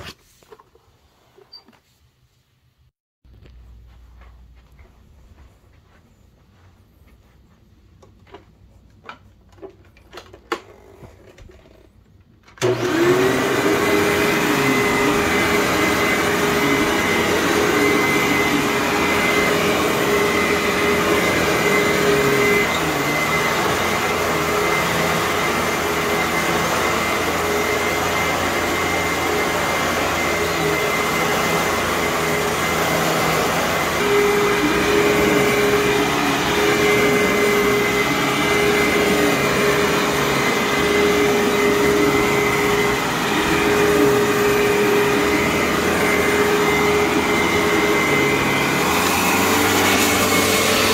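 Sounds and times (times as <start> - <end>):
upright vacuum cleaner running: 12.6 - 50.9.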